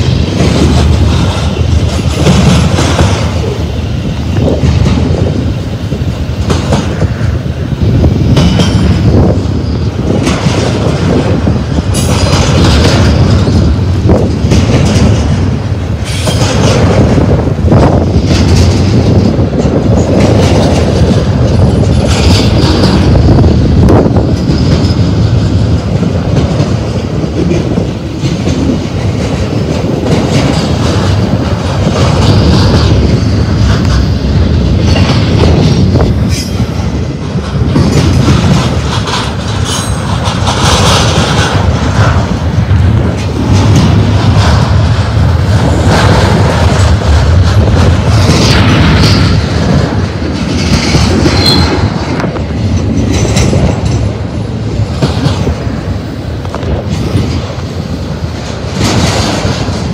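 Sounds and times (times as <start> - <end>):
train wheels rumbling on rail: 0.0 - 59.9
wheels clacking over rail joints: 0.0 - 59.9
wheel squeal: 51.4 - 51.9.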